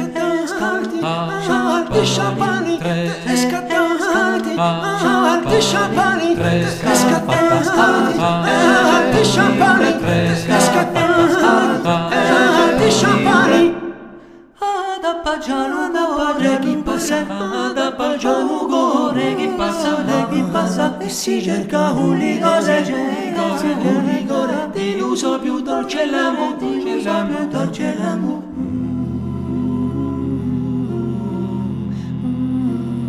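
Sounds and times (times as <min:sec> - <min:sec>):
music with singing: 0:00.0 - 0:14.0
voices singing in harmony: 0:00.0 - 0:33.0.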